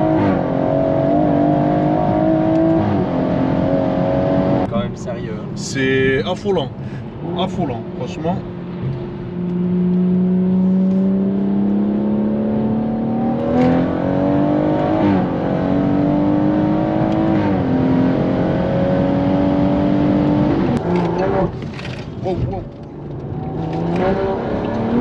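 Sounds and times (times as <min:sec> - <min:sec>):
car engine accelerating: 0:00.0 - 0:25.0.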